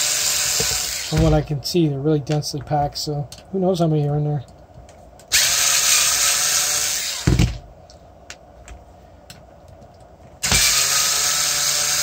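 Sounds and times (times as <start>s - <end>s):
electric screwdriver whine: 0.0s - 1.3s, 5.3s - 7.3s, 10.4s - 12.0s.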